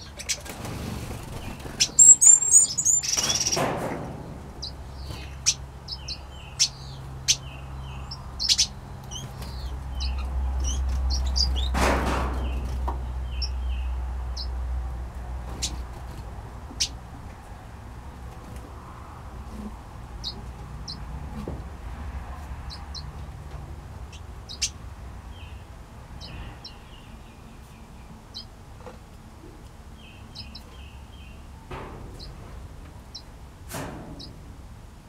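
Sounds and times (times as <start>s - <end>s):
finches and parrots chirping: 0.0s - 0.5s, 1.2s - 3.6s, 4.6s - 11.8s, 12.4s - 14.6s, 15.5s - 15.9s, 16.8s - 17.0s, 20.1s - 21.1s, 24.0s - 28.5s, 30.0s - 31.5s.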